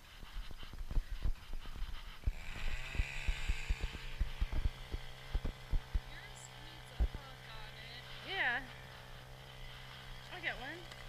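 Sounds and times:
engine running: 0.0 - 11.0
knocks and thumps: 0.7 - 6.1.

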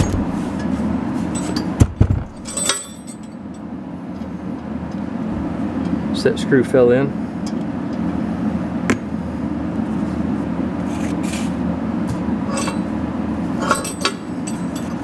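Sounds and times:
steady low hum: 0.0 - 15.0
metallic clinks and rattles: 2.4 - 3.6, 12.5 - 12.9, 13.6 - 15.0.

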